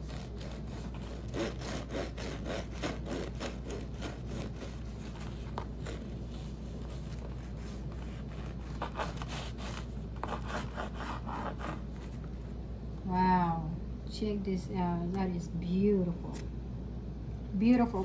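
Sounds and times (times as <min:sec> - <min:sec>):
bread knife sawing crusty loaf: 0:00.0 - 0:12.1.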